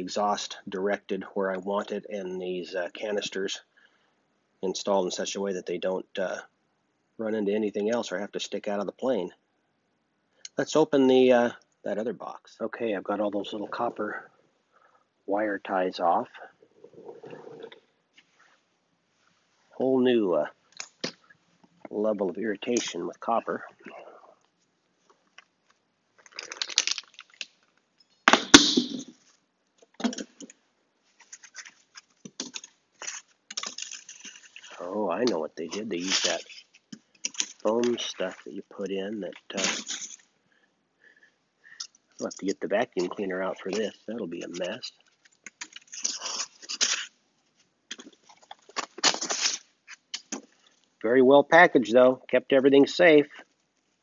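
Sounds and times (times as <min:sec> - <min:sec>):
hands rustling through foam packing: 0:25.1 - 0:27.8, 0:31.0 - 0:40.2, 0:42.2 - 0:50.8
sharp crack: 0:28.3 - 0:29.1
packing scraping and rustling: 0:31.1 - 0:40.3.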